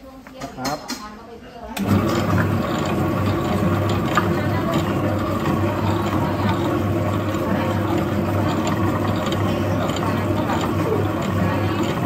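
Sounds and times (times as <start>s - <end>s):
dough mixer running: 1.8s - 12.0s.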